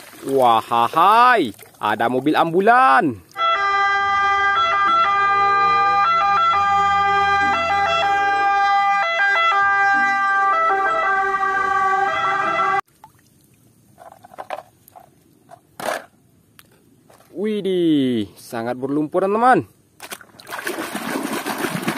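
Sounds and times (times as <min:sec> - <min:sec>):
ambulance siren: 0:03.4 - 0:12.8
plastic toy cars rattling: 0:14.0 - 0:15.1.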